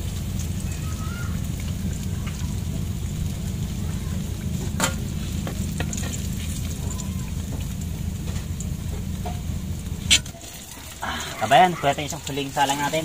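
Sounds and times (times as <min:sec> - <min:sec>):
food sizzling in a pan: 0:00.0 - 0:13.0
low rumble: 0:00.0 - 0:13.0.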